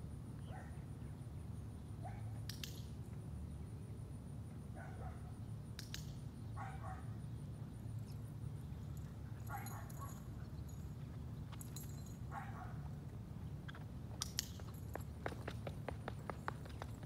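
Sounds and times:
dog claws tapping on concrete: 2.5 - 2.9, 13.7 - 17.0.

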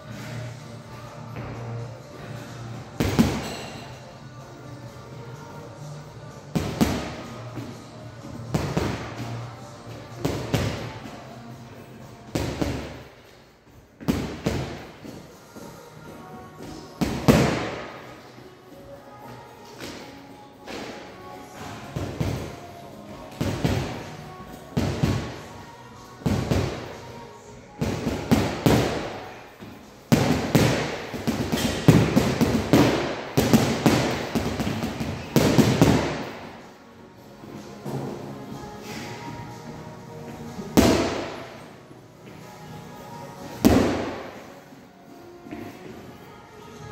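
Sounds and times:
punches hitting heavy bag: 30.2 - 36.2, 40.8 - 41.4.

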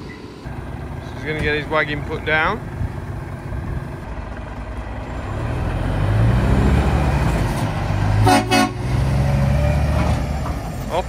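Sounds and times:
lorry diesel engine rumble: 0.0 - 11.0
short horn toot: 8.2 - 8.9.

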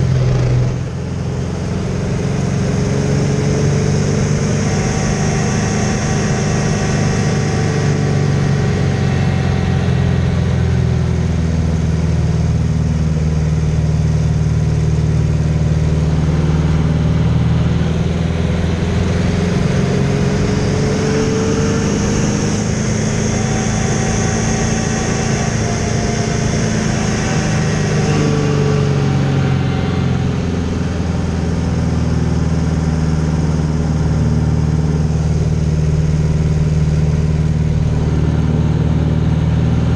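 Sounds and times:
propeller plane engine running: 0.0 - 39.9.

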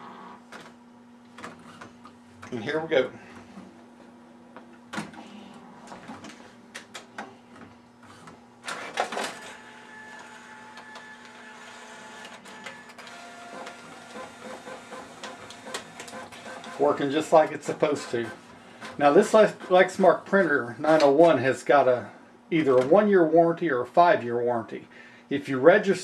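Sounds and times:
printer motor whine: 8.0 - 21.1
printer mechanism clatter: 8.1 - 19.8.

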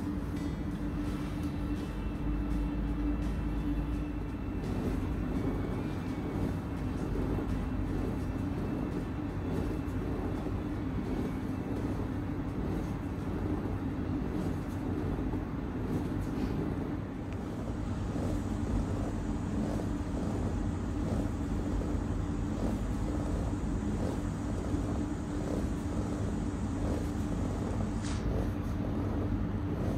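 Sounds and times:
low rumble and hum: 0.0 - 29.9.

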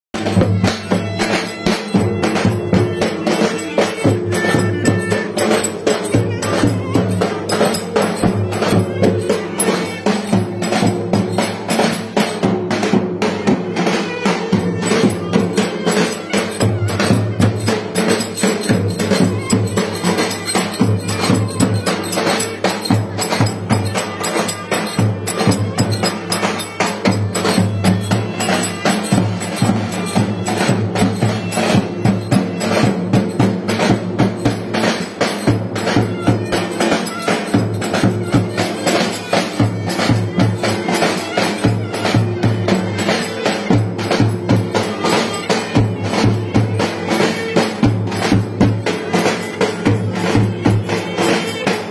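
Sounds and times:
reed wind instrument melody: 0.2 - 51.9.

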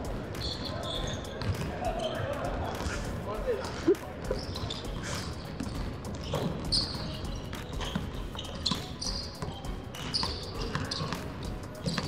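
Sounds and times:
sneakers squeaking: 0.1 - 12.0.

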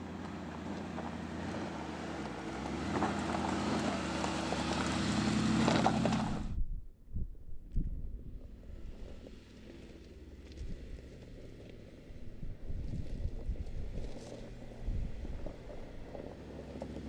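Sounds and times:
tyres crunching over gravel: 0.0 - 6.4, 13.0 - 17.0
engine running low: 0.0 - 6.7, 7.3 - 17.0.

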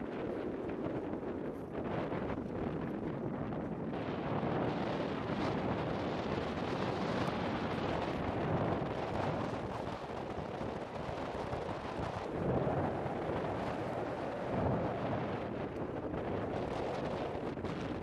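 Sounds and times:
volcano rumbling: 0.0 - 18.0.

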